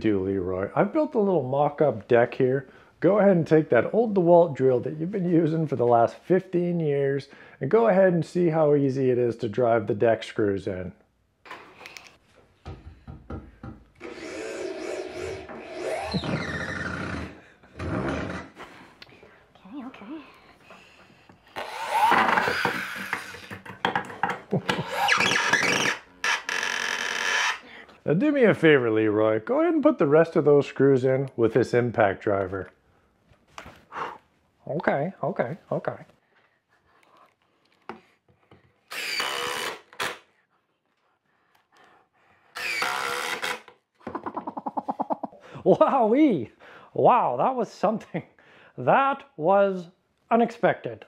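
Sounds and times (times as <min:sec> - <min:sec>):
drill driving screw into wood: 0:14.0 - 0:18.4, 0:21.5 - 0:23.5, 0:24.7 - 0:27.6, 0:38.9 - 0:40.2, 0:42.5 - 0:43.8
impact driver driving screws: 0:38.9 - 0:40.2, 0:42.6 - 0:43.7.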